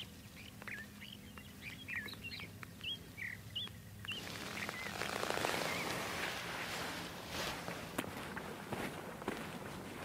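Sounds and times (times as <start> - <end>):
small birds chirping: 0.0 - 6.5.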